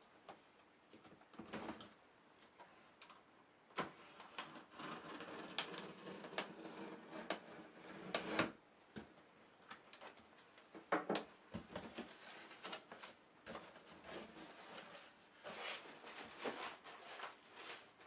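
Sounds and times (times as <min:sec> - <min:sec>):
blade scraping taped box: 0:04.2 - 0:08.6
cardboard rustling: 0:11.6 - 0:18.0.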